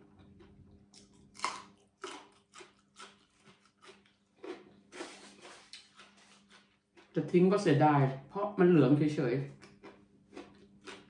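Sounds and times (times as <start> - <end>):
person crunching radish: 0.0 - 7.3, 9.6 - 11.0.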